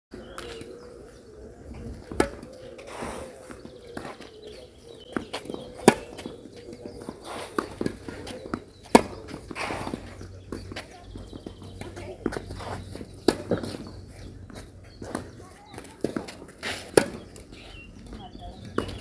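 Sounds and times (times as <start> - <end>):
racket hitting tennis ball: 2.1 - 3.0, 5.2 - 6.4, 7.4 - 10.8, 16.0 - 17.2
shoes scuffing on clay: 2.8 - 19.0.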